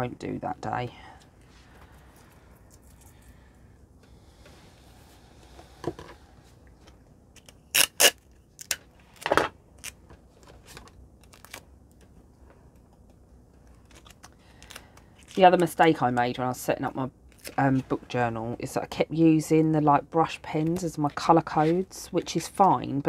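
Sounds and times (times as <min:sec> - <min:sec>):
scissors snipping tape: 0:07.4 - 0:08.8
handling of paper and tape: 0:07.4 - 0:09.2, 0:10.6 - 0:12.0, 0:13.5 - 0:15.4.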